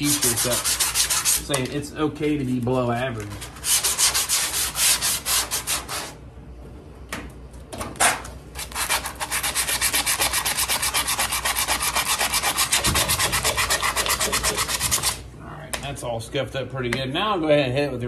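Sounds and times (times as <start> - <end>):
sandpaper scuffing car panel: 8.6 - 15.2.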